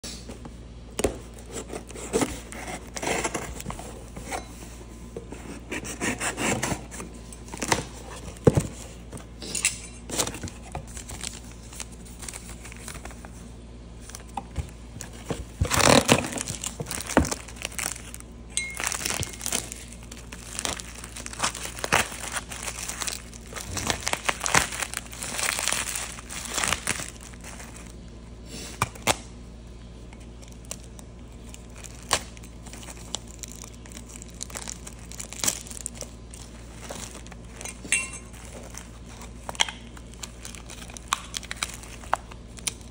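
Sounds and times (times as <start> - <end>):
cardboard and paper rustling: 0.3 - 9.4, 10.1 - 18.2, 18.8 - 28.0, 30.2 - 42.9
bubble wrap crinkling: 10.1 - 29.2, 30.0 - 42.9.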